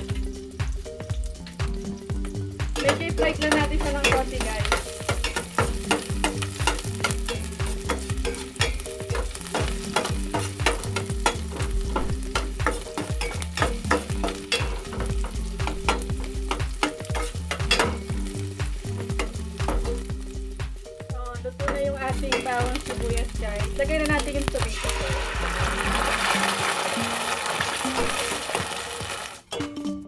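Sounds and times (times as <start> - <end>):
garlic and onion sizzling in oil: 0.0 - 29.6
utensil scraping metal pot: 2.8 - 18.1.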